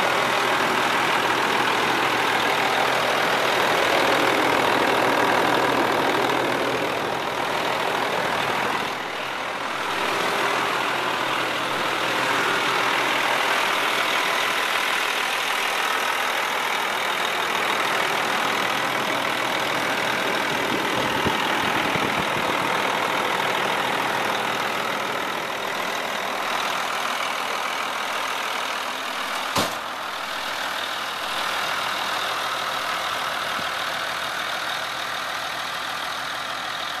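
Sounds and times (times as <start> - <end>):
diesel truck engine idling: 0.0 - 37.0.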